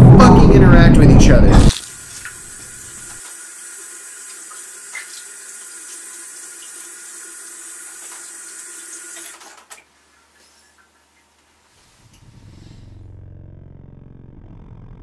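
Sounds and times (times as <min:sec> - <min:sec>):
faucet water splashing into basin: 0:01.7 - 0:11.4.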